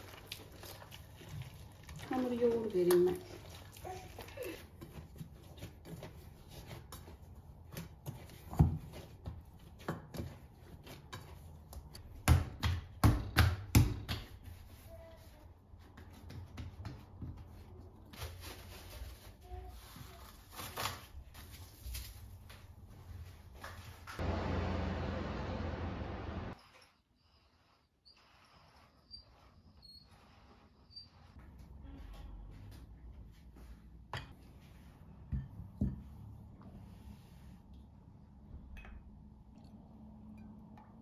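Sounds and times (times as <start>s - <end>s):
dough being kneaded: 0.0s - 24.9s
dough thumping on stone countertop: 7.7s - 14.5s.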